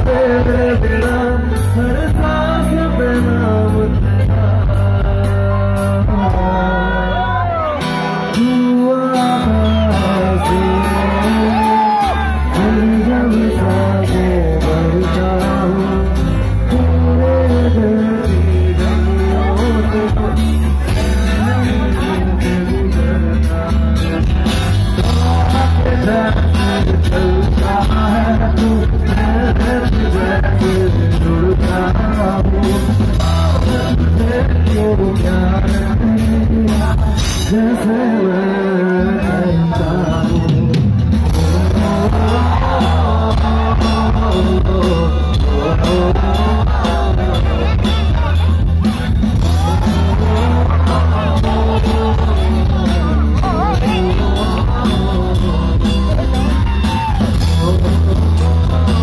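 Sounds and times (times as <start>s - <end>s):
heavy bass: 0.0s - 59.0s
live band playing: 0.0s - 59.0s
person singing: 0.0s - 59.0s
drum beat: 40.5s - 59.0s.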